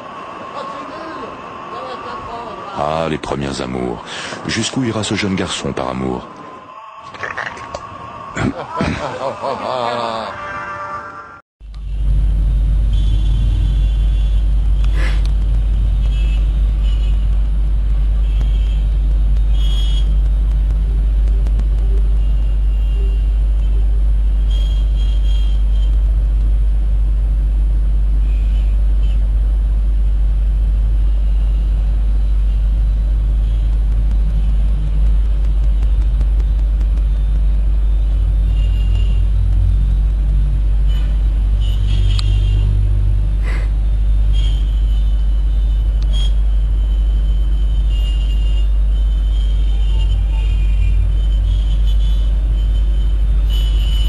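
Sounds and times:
street traffic rumble: 0.0 - 54.0.

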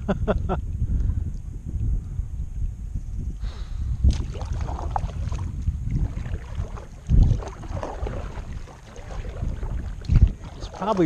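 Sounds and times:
wind buffeting microphone: 0.0 - 11.0
paddle strokes splashing: 4.1 - 11.0.

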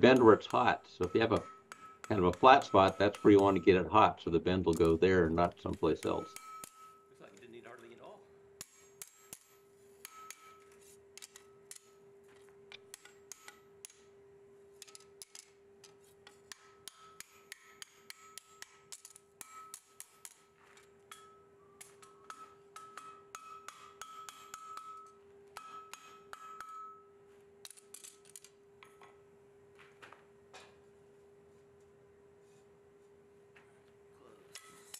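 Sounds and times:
hammer striking hot steel on anvil: 0.0 - 7.9, 8.6 - 12.0, 12.7 - 14.2, 14.8 - 28.2, 34.5 - 34.9.

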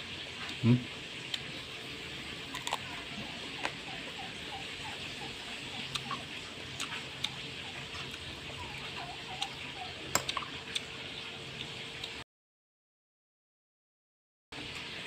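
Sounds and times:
soft chewing: 2.3 - 4.0, 5.3 - 11.0.

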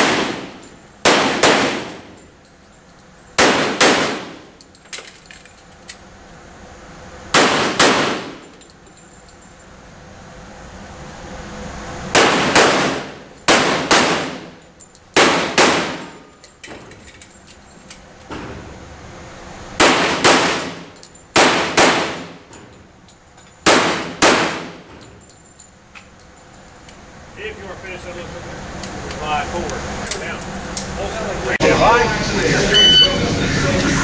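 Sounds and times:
pistol shots echoing indoors: 0.0 - 2.1, 3.4 - 4.5, 7.3 - 8.4, 12.2 - 14.6, 15.2 - 16.2, 19.8 - 22.4, 23.6 - 24.9.

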